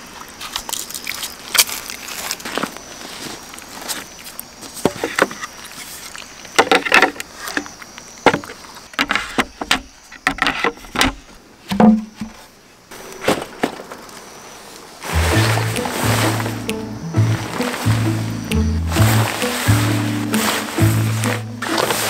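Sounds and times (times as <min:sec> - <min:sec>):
dull thump: 0:11.7 - 0:12.4.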